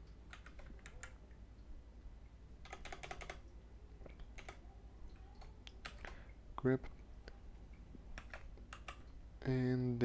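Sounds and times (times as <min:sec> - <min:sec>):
keyboard typing: 0:00.1 - 0:01.3, 0:02.6 - 0:06.3, 0:08.0 - 0:09.2.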